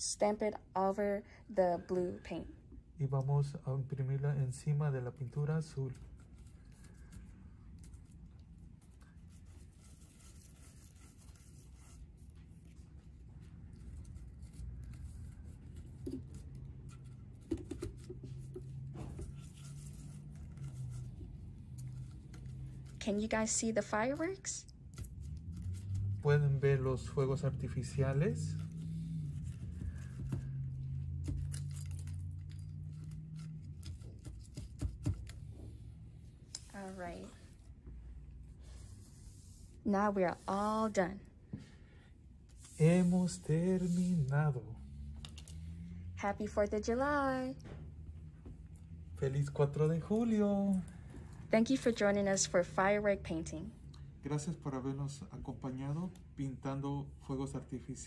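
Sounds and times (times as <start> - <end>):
low room hum: 0.0 - 58.0
straws tapping on paper: 17.3 - 18.9.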